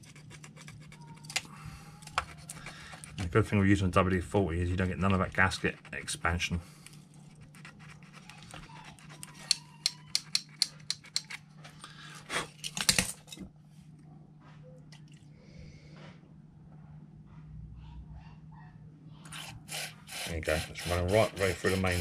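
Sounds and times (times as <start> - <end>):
low hum: 13.2 - 19.3
spray can hiss: 19.3 - 21.1.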